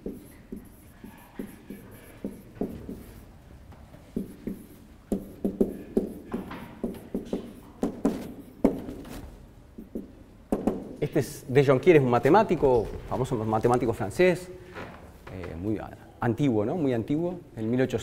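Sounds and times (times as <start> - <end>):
marker writing on whiteboard: 0.0 - 9.1, 9.7 - 11.0.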